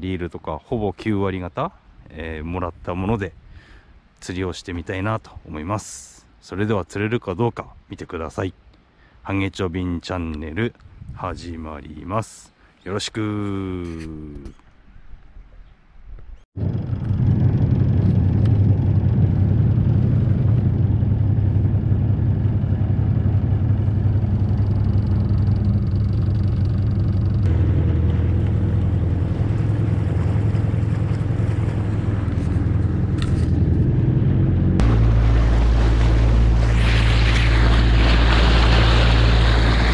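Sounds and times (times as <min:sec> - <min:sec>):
wind on the microphone: 0:10.7 - 0:11.6
boat engine rumbling: 0:16.6 - 0:39.9
water rushing along a hull: 0:18.4 - 0:39.9.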